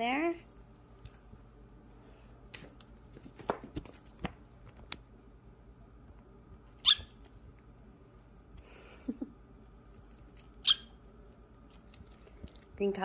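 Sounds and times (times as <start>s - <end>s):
kitten chirping: 6.8s - 7.2s, 10.6s - 11.0s.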